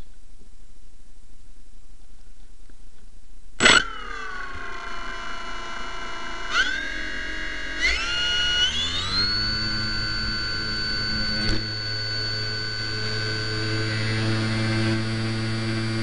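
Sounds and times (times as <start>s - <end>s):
motor click: 3.6s - 13.8s
motor whine rising: 3.6s - 16.0s.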